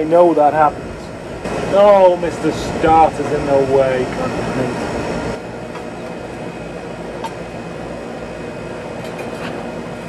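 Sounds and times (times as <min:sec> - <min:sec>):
fan-like background noise: 0:00.0 - 0:10.0.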